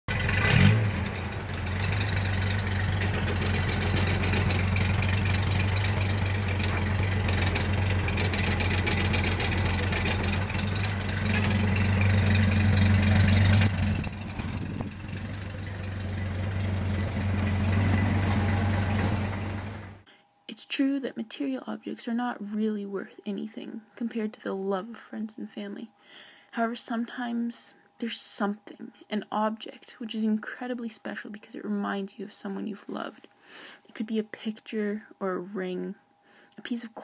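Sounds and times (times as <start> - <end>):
car engine revving and idling: 0.1 - 20.0.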